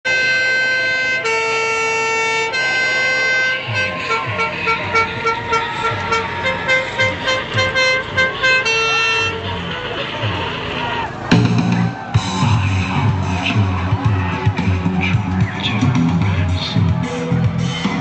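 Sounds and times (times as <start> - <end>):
horn notes: 0.1 - 18.0
thumping beat: 11.3 - 18.0.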